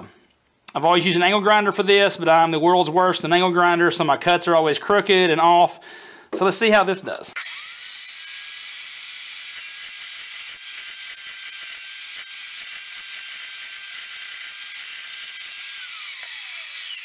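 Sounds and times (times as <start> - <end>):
chop saw whining cutting steel: 7.3 - 17.0.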